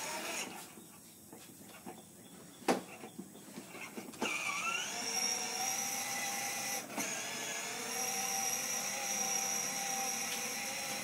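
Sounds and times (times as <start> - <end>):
toy electric motor whining: 0.0 - 0.6, 4.2 - 11.0.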